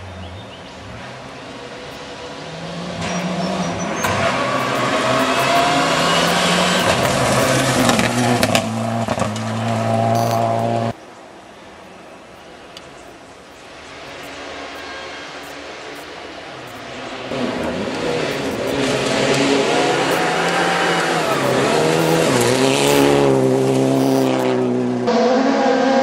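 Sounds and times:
rally car engine revving: 1.7 - 11.0, 16.8 - 26.0.

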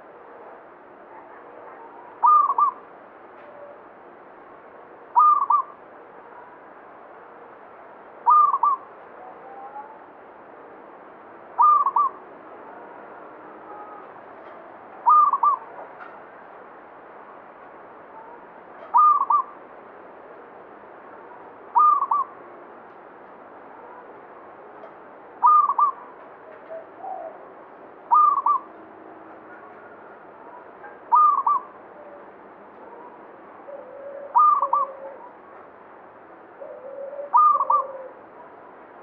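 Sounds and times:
dove cooing: 1.1 - 2.8, 5.2 - 5.7, 8.3 - 8.8, 11.6 - 12.2, 15.0 - 15.7, 18.9 - 19.5, 21.8 - 22.3, 25.4 - 27.4, 28.1 - 28.7, 29.5 - 32.2, 32.8 - 35.4, 36.6 - 38.2.

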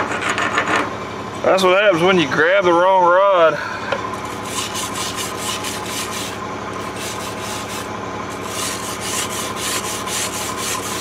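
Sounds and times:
machine hum: 0.0 - 11.0
wire brush scrubbing steel: 4.2 - 11.0.

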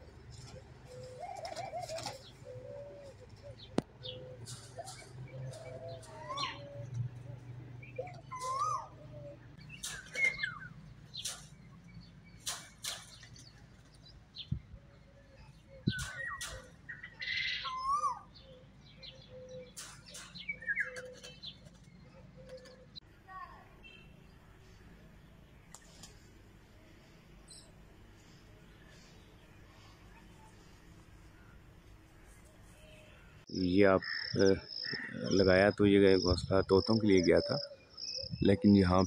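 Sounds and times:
parakeets squawking and chirping: 7.8 - 9.0, 33.8 - 39.0.

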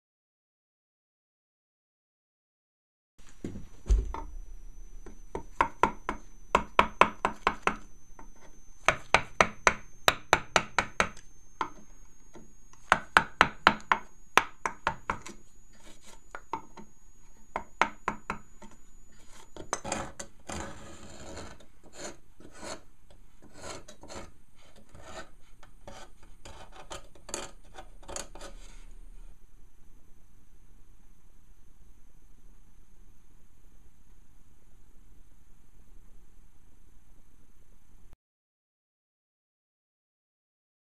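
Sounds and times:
gouge scraping wood: 14.9 - 16.9, 18.3 - 28.9.

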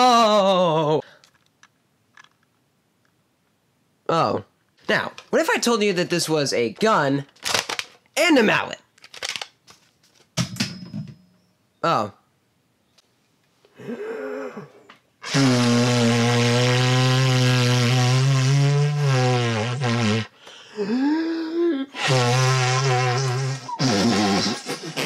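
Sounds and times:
person holding low buzzy note: 22.0 - 24.6.

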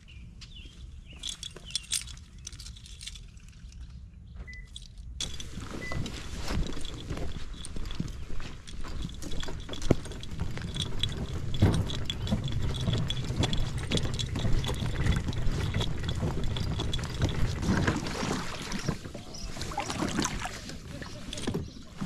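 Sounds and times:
water sloshing around kayak: 9.0 - 22.0.

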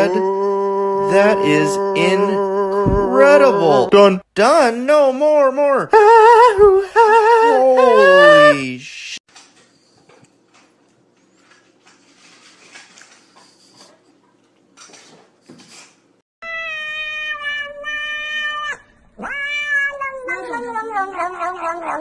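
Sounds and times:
cat meowing loudly: 16.4 - 22.0.

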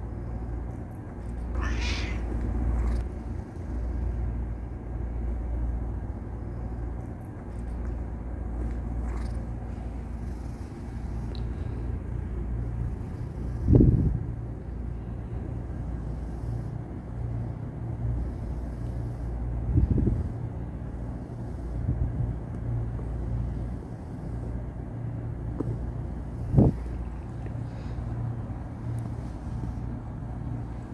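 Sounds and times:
cat purring: 0.2 - 4.3, 6.2 - 28.0
cat meowing: 1.5 - 2.4.

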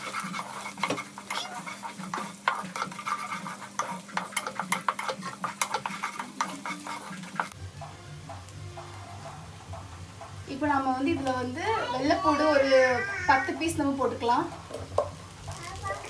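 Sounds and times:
wooden spatula scraping metal pot: 0.0 - 7.6
onions sizzling in oil: 0.0 - 16.0.

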